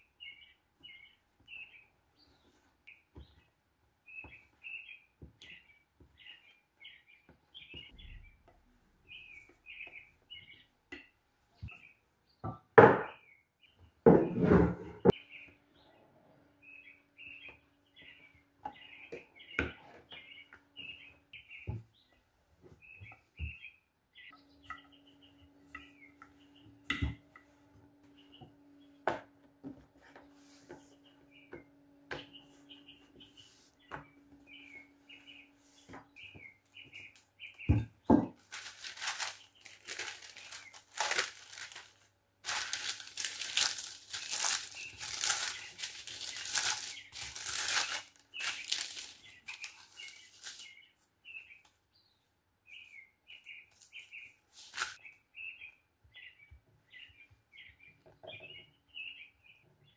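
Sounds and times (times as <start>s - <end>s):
birds chirping: 0.0s - 59.9s
baking paper crinkling: 38.3s - 50.9s, 53.7s - 55.1s.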